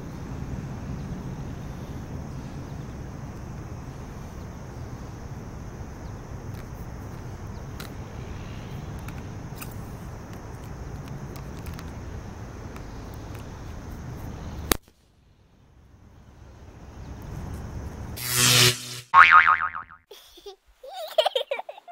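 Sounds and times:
balloon squeaking: 18.2s - 20.0s
balloon popping bang: 19.1s - 20.0s.

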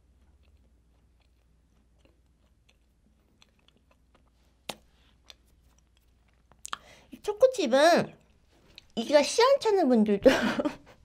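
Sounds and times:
soft cookie chewing: 0.0s - 9.3s
wet mouth clicks: 0.3s - 6.9s.

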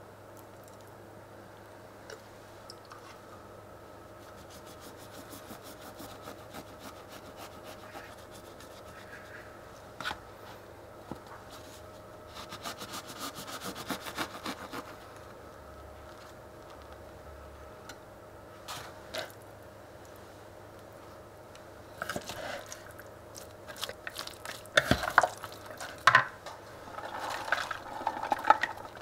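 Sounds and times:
knife sawing through bread: 4.3s - 9.3s, 12.3s - 15.0s.

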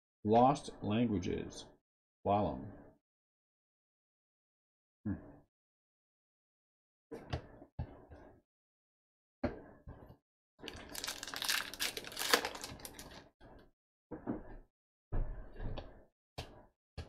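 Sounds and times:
wrapper crinkling and tearing: 10.7s - 13.2s
cards rustling: 10.8s - 13.1s.

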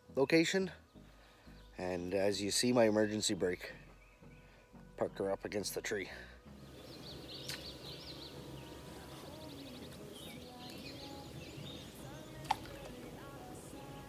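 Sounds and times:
outdoor background noise: 0.0s - 14.0s
small birds chirping: 0.0s - 14.0s
short sharp click: 7.4s - 7.7s.

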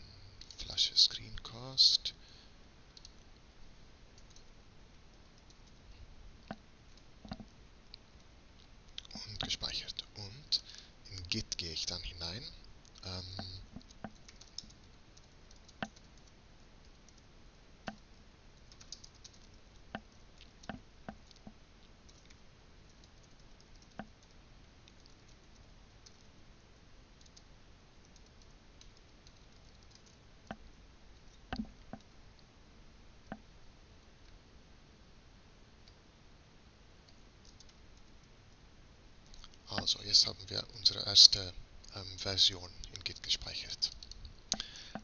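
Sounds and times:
computer keyboard clicks: 3.0s - 3.2s, 4.2s - 4.5s, 12.9s - 17.2s, 18.6s - 25.4s, 27.2s - 27.5s, 28.1s - 30.6s, 37.4s - 38.1s.

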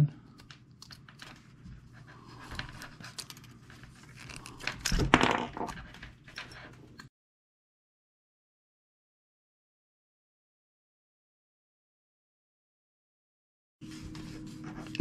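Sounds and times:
wire strands ticking and scraping: 0.3s - 5.0s.

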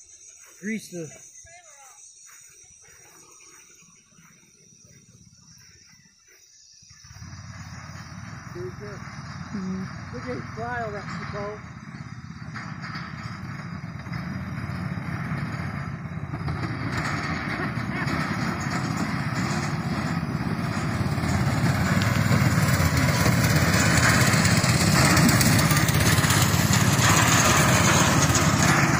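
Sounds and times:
go-kart engine passing by: 6.9s - 28.9s.

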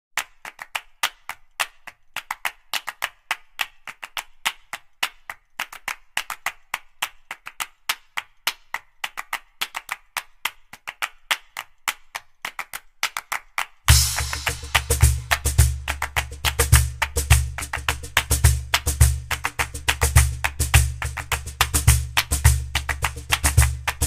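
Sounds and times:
rapid dry percussive clicks: 13.9s - 24.0s.

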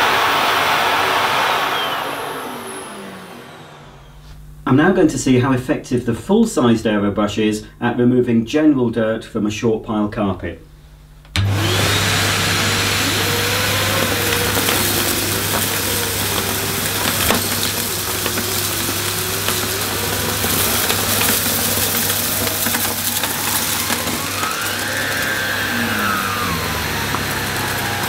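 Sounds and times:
vacuum cleaner running: 0.0s - 4.8s, 11.3s - 28.0s
turbo brush whine: 0.0s - 5.0s, 11.3s - 28.0s
debris clicking in vacuum: 11.4s - 28.0s.

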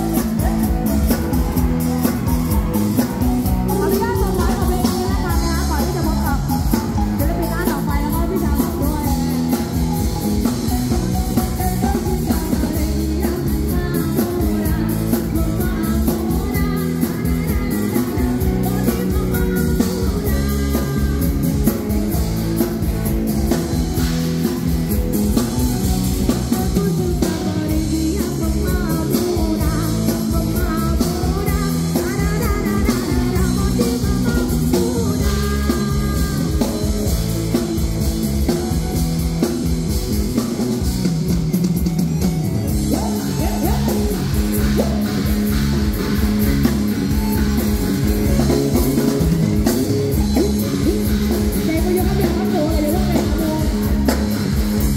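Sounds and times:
woman singing into a microphone: 0.0s - 22.2s, 25.8s - 37.8s, 42.7s - 45.2s, 50.1s - 54.8s
live band playing: 0.0s - 54.9s.

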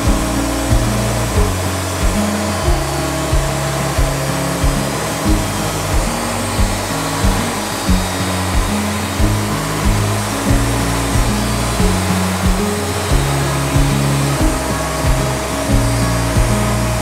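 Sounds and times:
band sawmill cutting log: 0.0s - 17.0s
music with beat and bass: 0.0s - 17.0s.

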